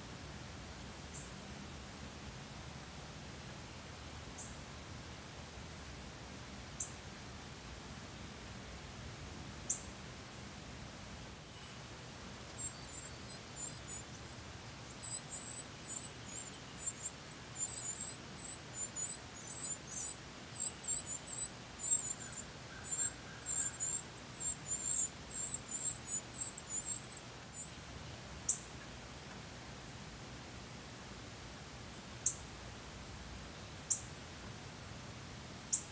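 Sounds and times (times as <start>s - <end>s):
nestlings chirping: 12.5s - 27.7s.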